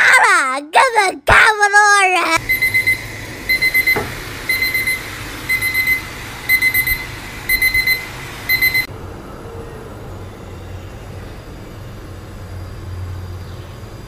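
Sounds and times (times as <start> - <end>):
alarm clock beeping: 2.4 - 8.9.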